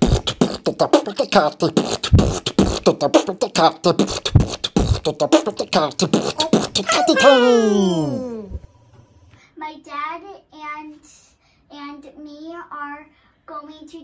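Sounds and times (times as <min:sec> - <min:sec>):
fast vocal beatboxing: 0:00.0 - 0:08.6
choppy vocal snippets: 0:00.0 - 0:08.7.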